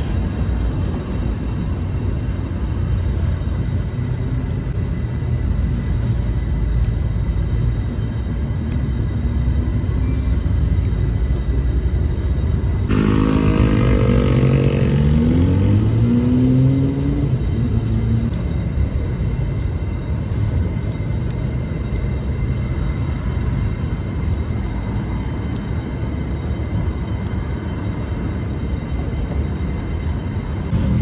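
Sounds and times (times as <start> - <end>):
steady low rumble: 0.0 - 31.0
car engine accelerating: 12.9 - 18.4, 30.7 - 31.0.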